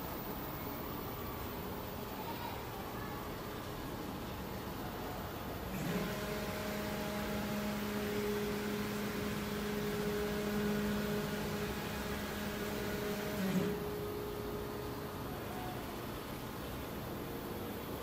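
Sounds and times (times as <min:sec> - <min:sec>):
stepper motors whining: 0:05.6 - 0:17.3.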